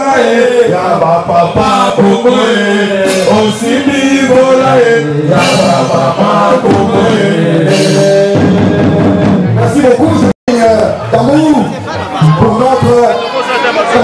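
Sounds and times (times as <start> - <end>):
crowd chanting a song: 0.0 - 9.5.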